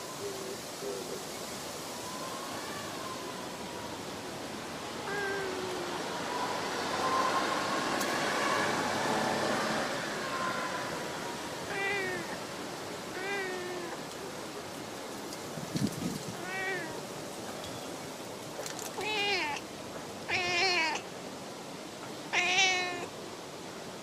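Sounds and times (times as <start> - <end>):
outdoor hiss: 0.0 - 24.0
cat meowing softly: 2.0 - 4.0, 5.0 - 7.4, 10.2 - 12.4, 13.1 - 14.1, 16.3 - 17.0, 18.9 - 21.1, 22.3 - 23.1.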